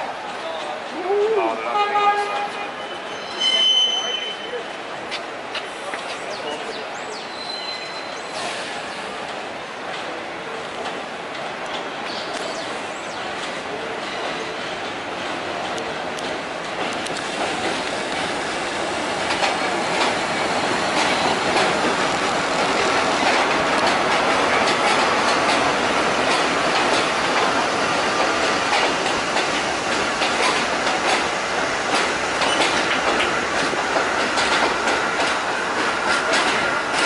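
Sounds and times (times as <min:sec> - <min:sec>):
train wheels rumbling: 0:00.0 - 0:37.0
faint wheel squeal: 0:02.8 - 0:04.6, 0:07.3 - 0:08.6
wheels clicking over rail joints: 0:13.4 - 0:37.0.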